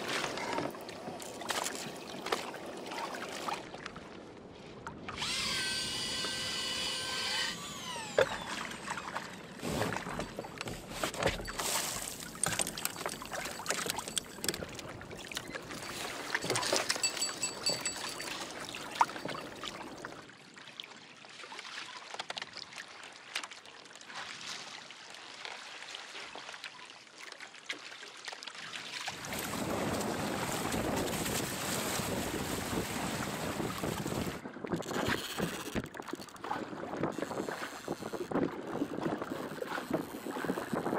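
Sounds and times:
water splashing along hull: 0:00.0 - 0:40.9
rod and reel clicks: 0:05.1 - 0:09.4, 0:10.0 - 0:18.4, 0:34.7 - 0:40.9
fishing reel drag buzzing: 0:05.2 - 0:09.6, 0:34.8 - 0:36.4
wind noise: 0:29.2 - 0:40.9.

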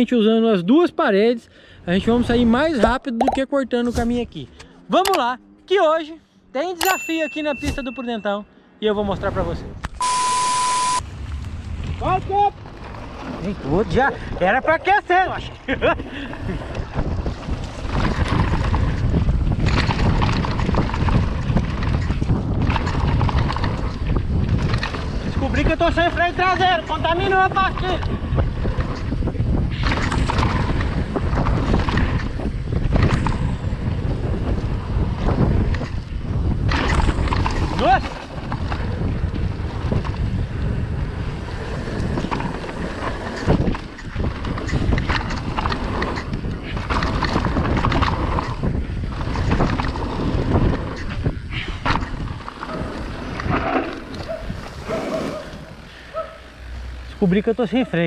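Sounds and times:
bike rattling clicks: 0:04.6 - 0:05.3, 0:16.6 - 0:27.1, 0:27.7 - 0:54.8
mountain bike rumbling on dirt: 0:09.2 - 0:58.0
wind buffeting microphone: 0:10.9 - 0:58.0.

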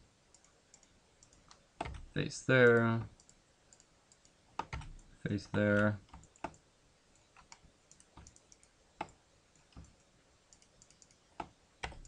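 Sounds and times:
mouse and keyboard clicks: 0:07.2 - 0:12.0.

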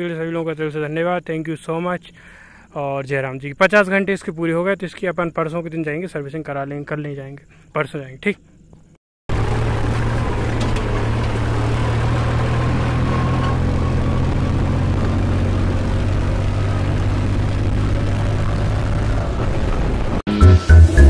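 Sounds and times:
tractor diesel engine droning: 0:09.3 - 0:21.0.

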